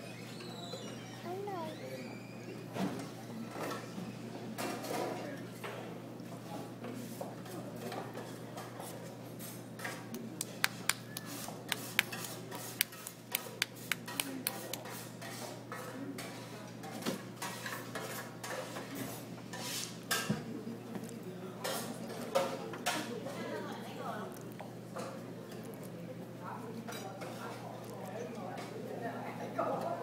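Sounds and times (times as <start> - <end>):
dishes and cutlery clinking: 26.8 - 28.8.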